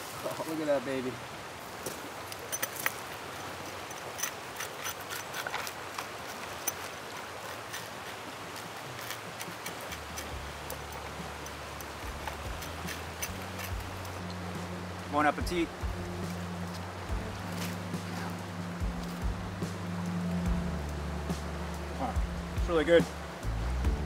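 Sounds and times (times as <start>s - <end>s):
river water rushing: 0.0s - 24.0s
low steady hum: 9.7s - 24.0s.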